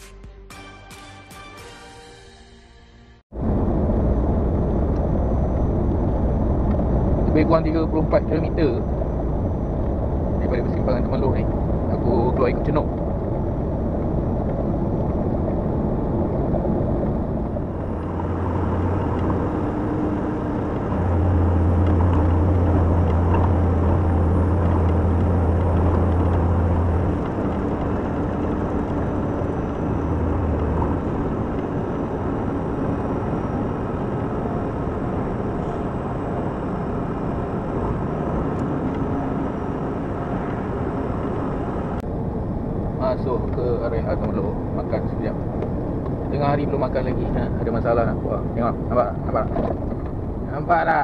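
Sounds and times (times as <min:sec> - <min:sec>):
deep hum: 0:03.0 - 0:43.0
tyres on road: 0:04.3 - 0:51.0
truck diesel engine: 0:15.8 - 0:42.0.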